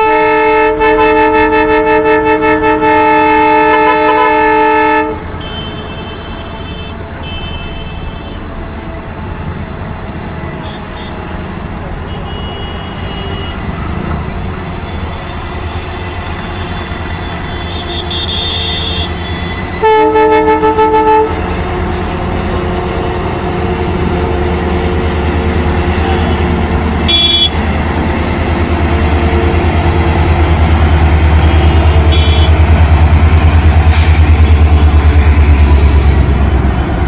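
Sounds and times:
train horn blast: 0:00.0 - 0:08.4, 0:12.0 - 0:13.8, 0:16.5 - 0:21.6, 0:25.8 - 0:27.7, 0:29.2 - 0:36.4
locomotive engine rumble: 0:00.2 - 0:37.0.

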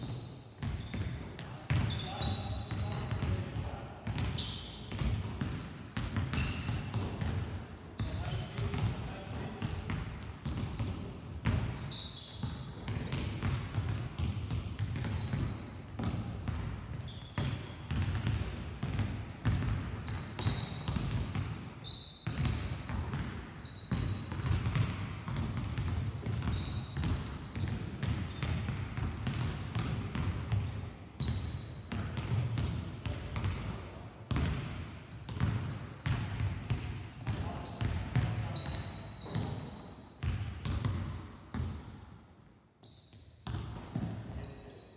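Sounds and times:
sneakers squeaking on floor: 0:00.0 - 0:41.7, 0:42.8 - 0:44.9
basketballs bouncing on floor: 0:00.0 - 0:42.0, 0:43.4 - 0:44.5.

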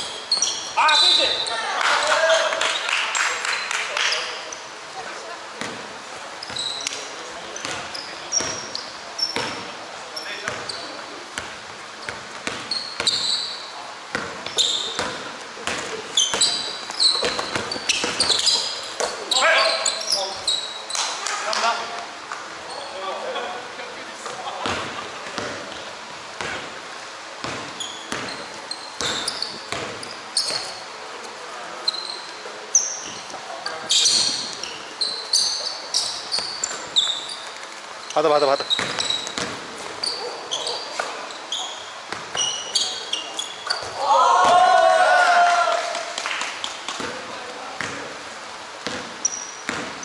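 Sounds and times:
sneakers squeaking on floor: 0:00.0 - 0:02.9, 0:05.6 - 0:23.2, 0:24.2 - 0:26.8, 0:27.4 - 0:44.6, 0:46.7 - 0:48.2, 0:48.8 - 0:50.0
basketball bouncing on court: 0:05.6 - 0:06.7, 0:07.6 - 0:09.7, 0:10.4 - 0:10.8, 0:11.4 - 0:13.4, 0:14.1 - 0:19.3, 0:24.6 - 0:26.7, 0:27.4 - 0:30.8, 0:38.6 - 0:40.1, 0:42.1 - 0:42.6, 0:47.0 - 0:48.2, 0:48.8 - 0:50.0.

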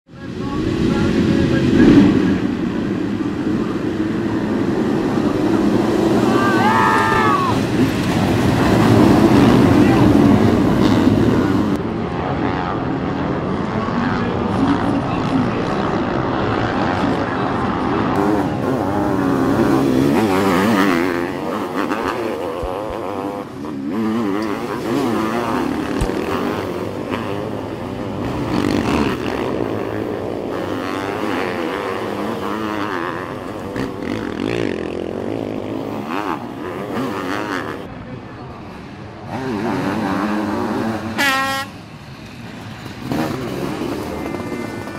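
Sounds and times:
motorcycle engines revving: 0:00.0 - 0:44.9.

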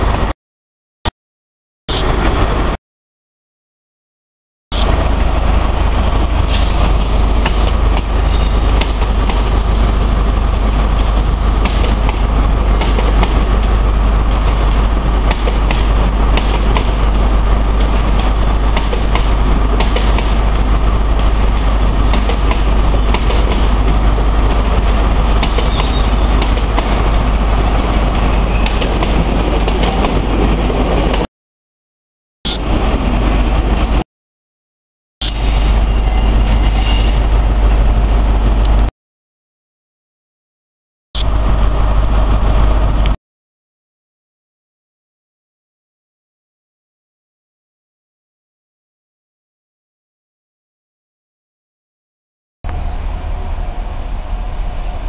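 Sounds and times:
diesel train engines droning: 0:04.8 - 0:31.0, 0:35.2 - 0:38.9, 0:41.2 - 0:43.2, 0:52.7 - 0:55.0.

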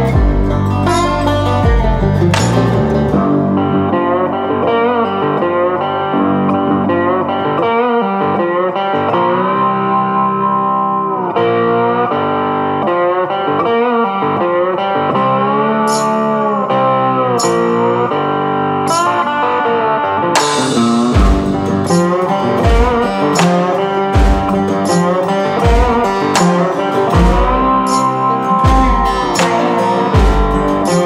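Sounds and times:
guitar bending notes: 0:00.0 - 0:31.0
sharp hits: 0:00.1 - 0:03.8, 0:20.3 - 0:31.0.

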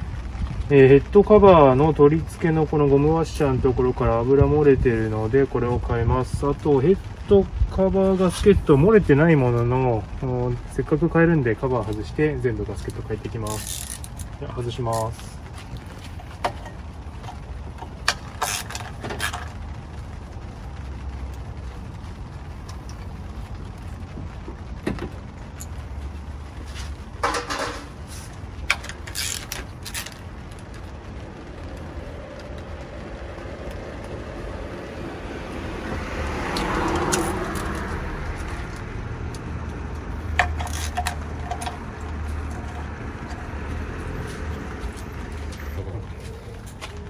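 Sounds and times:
traffic hum: 0:00.0 - 0:47.0
vehicle passing: 0:31.0 - 0:47.0.

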